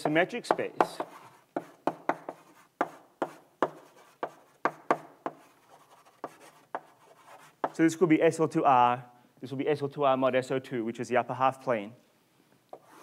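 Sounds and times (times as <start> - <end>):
chalk tapping and scratching: 0.0 - 7.8, 12.7 - 13.0.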